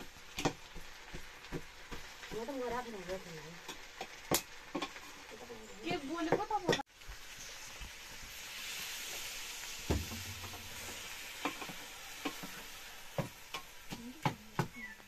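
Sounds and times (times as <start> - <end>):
food sizzling in metal pot: 0.0 - 15.0.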